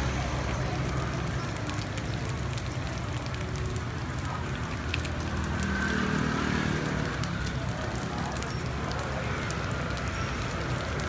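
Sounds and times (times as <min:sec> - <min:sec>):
batter sizzling on griddle: 0:00.0 - 0:11.0
small pops and ticks: 0:00.4 - 0:06.0.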